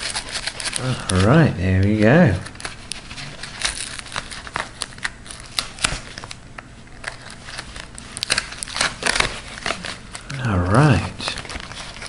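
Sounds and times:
wrapper crinkling and crackling: 0:00.0 - 0:12.0
knife slicing envelope: 0:07.1 - 0:10.2.

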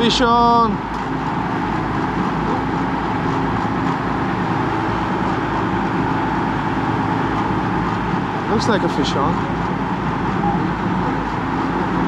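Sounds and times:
boat engine drone: 0:00.0 - 0:12.0
wake water churning: 0:00.0 - 0:12.0.

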